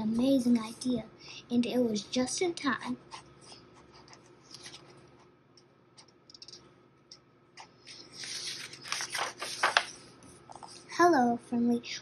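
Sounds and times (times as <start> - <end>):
page turning rustle: 4.5 - 5.0, 7.9 - 10.9.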